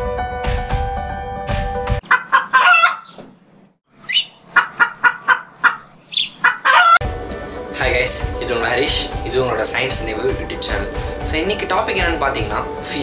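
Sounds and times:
music: 0:00.0 - 0:02.0, 0:07.0 - 0:13.0
cartoon chicken clucking: 0:02.0 - 0:03.2, 0:04.1 - 0:07.0.

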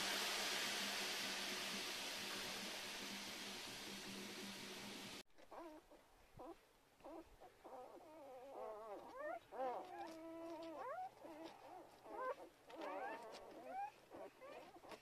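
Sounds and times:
puppies whimpering and squeaking: 0:05.5 - 0:15.0.

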